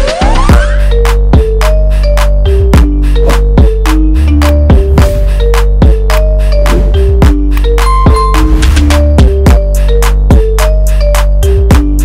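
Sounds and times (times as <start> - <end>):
drum beat: 2.7 - 10.7.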